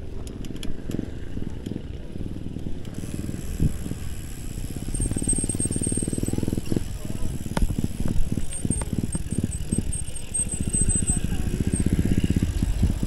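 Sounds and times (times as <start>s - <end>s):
bike tyres rumbling on dirt: 0.0s - 13.0s
fast even ticking: 2.9s - 13.0s.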